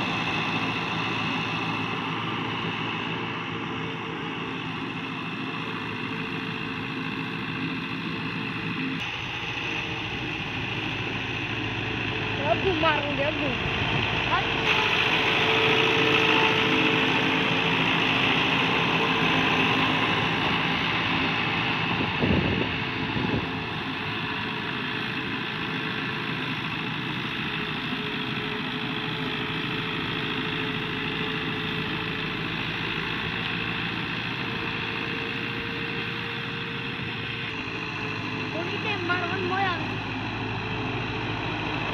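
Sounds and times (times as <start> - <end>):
tractor diesel engine running: 0.0 - 41.9.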